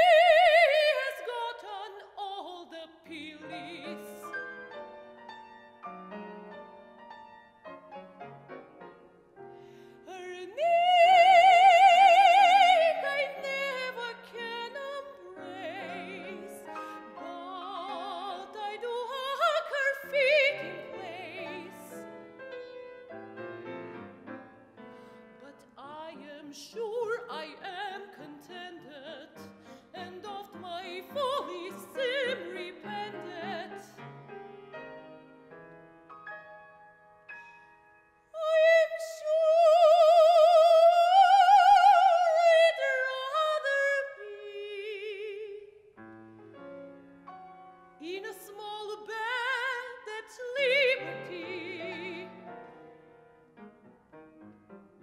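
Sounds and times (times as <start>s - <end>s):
woman singing opera: 0.0s - 4.4s, 10.0s - 22.1s, 25.4s - 34.0s, 38.4s - 45.8s, 48.0s - 52.6s
grand piano: 0.0s - 55.0s.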